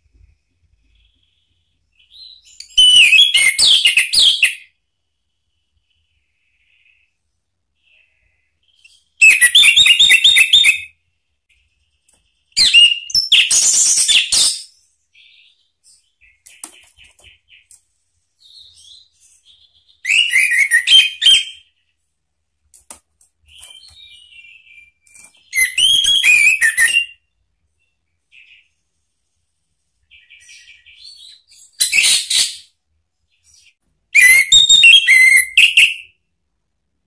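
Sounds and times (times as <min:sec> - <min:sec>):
thrush singing whistled phrases: 0:02.1 - 0:04.7, 0:08.8 - 0:11.0, 0:12.6 - 0:14.7, 0:18.7 - 0:21.7, 0:23.6 - 0:27.3, 0:34.2 - 0:36.2.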